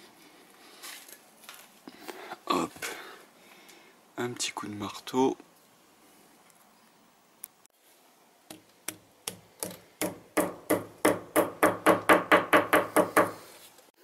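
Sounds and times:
hammer tapping wall anchor: 8.5 - 13.3.

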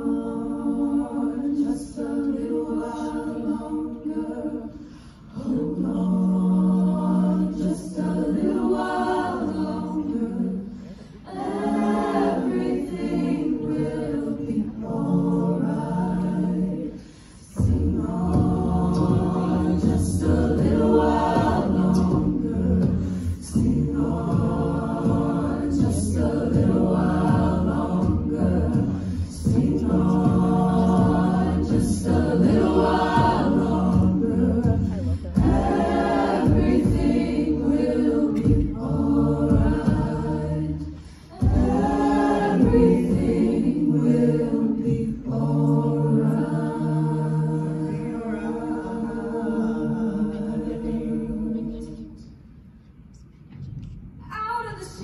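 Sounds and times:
a cappella group singing: 0.0 - 54.0.

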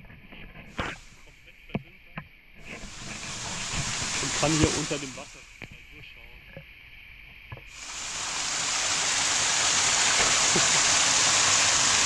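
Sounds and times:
water showering in cave: 2.6 - 5.6, 7.7 - 12.0.

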